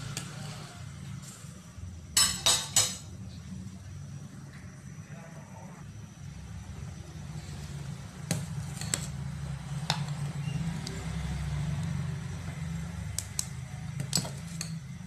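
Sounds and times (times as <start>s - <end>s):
water boiling in a pot: 0.0s - 5.0s, 5.8s - 15.0s
spoon stirring rice: 7.2s - 11.2s, 11.8s - 15.0s.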